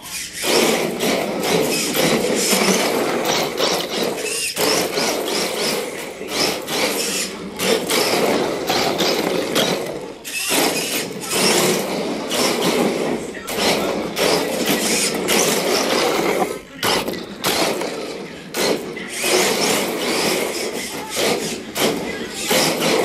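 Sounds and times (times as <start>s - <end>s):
toy car tyres squealing: 0.0s - 23.0s.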